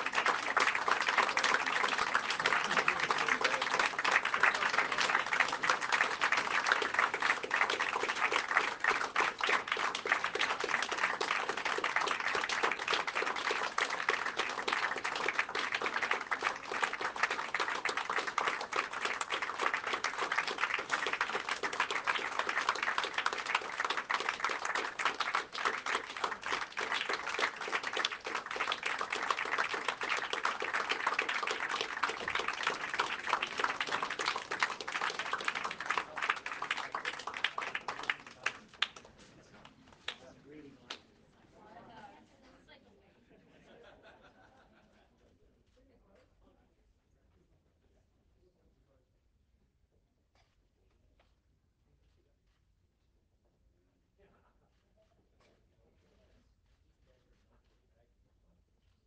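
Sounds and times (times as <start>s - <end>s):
crowd applauding: 0.0s - 39.1s.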